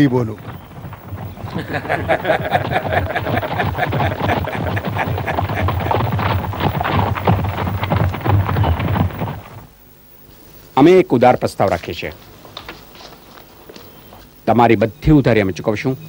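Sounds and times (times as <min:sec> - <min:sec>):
carriage wheels rattling: 0:00.0 - 0:09.7
hooves clattering on cobblestones: 0:00.0 - 0:09.8.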